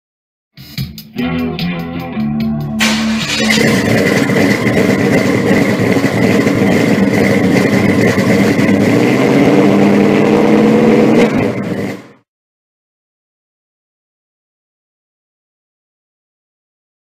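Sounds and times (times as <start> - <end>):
steady high tone: 1.2 - 6.9
car engine revving: 2.1 - 12.2.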